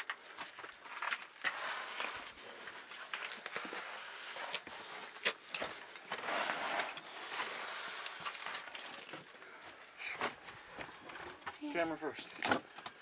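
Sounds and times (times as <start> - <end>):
pack and clothing scraping rock: 0.8 - 9.2.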